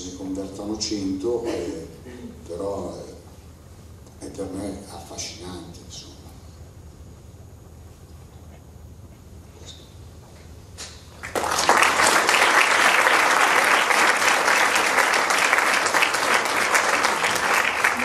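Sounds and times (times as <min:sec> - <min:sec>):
audience applauding: 0:11.2 - 0:18.0.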